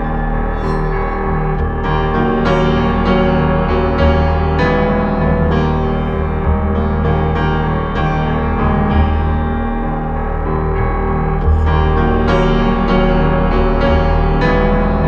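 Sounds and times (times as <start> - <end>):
keyboard playing notes: 0.0 - 15.0
sustained low bass: 0.0 - 15.0.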